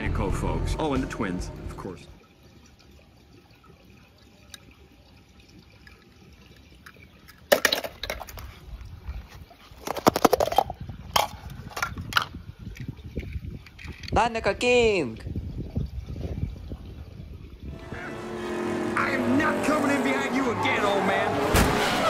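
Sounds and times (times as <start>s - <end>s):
water splashing and sloshing: 1.0s - 14.4s, 15.2s - 18.9s.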